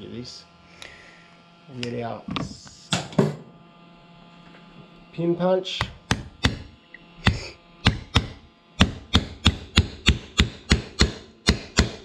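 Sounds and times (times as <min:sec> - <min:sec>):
hammer tapping steel punch: 0:05.8 - 0:12.0.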